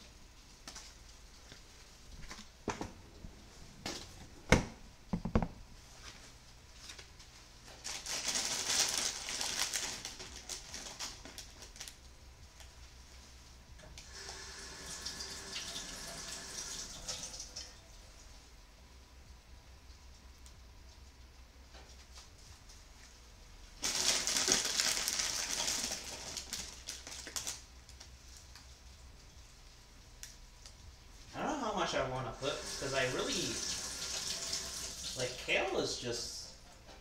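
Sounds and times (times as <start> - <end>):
kitchen tap running: 14.0 - 17.9, 32.4 - 35.8.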